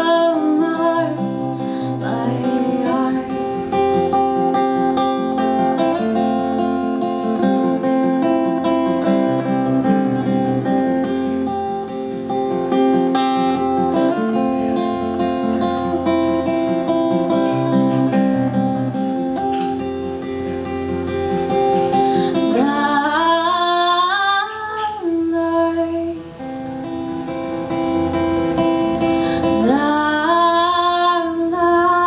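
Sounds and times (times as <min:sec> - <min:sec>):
woman singing: 0:00.0 - 0:03.8, 0:22.2 - 0:26.4, 0:29.4 - 0:32.0
acoustic guitar: 0:00.0 - 0:32.0.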